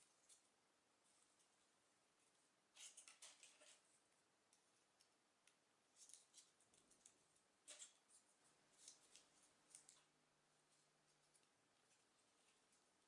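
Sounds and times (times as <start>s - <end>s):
paper rustling and clicking: 2.8s - 3.8s, 8.8s - 10.1s.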